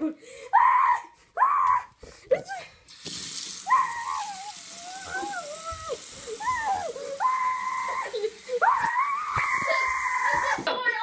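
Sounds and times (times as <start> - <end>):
child wailing and squealing: 3.7 - 11.0.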